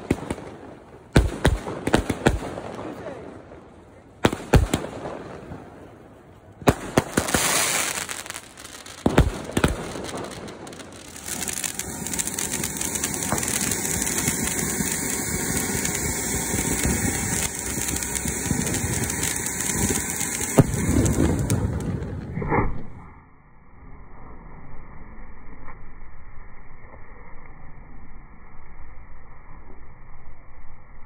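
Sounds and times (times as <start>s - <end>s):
sharp firework bangs: 6.6s - 22.4s
fountain firework hissing and crackling: 6.7s - 22.3s.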